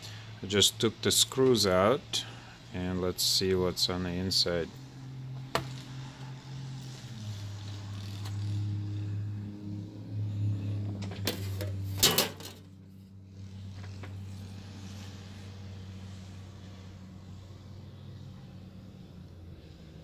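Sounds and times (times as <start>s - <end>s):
steady low hum: 0.0s - 20.0s
metallic clatter: 11.0s - 12.7s.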